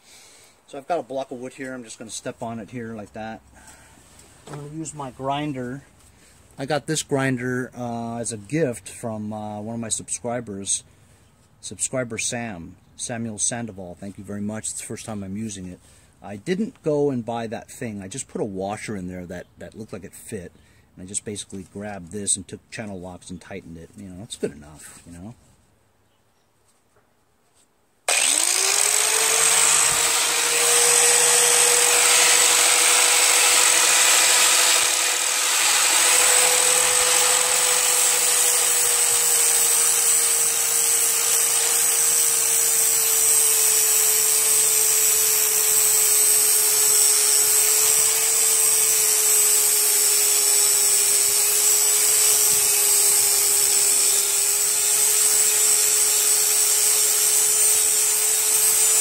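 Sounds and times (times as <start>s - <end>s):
angle grinder whine: 28.1s - 59.0s
grinder grinding metal blade: 28.1s - 59.0s.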